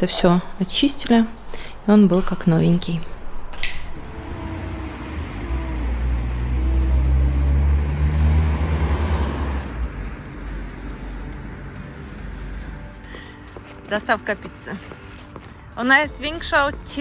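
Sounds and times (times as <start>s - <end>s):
traffic noise: 0.0s - 17.0s
car driving past: 3.9s - 13.8s.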